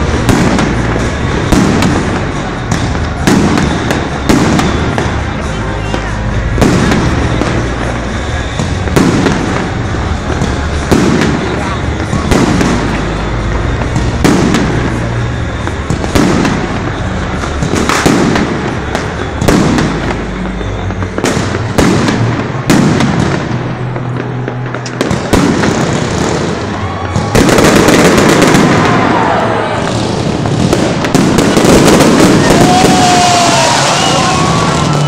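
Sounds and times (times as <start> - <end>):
fireworks bangs: 0.0 - 35.0
fireworks crackling: 0.0 - 35.0.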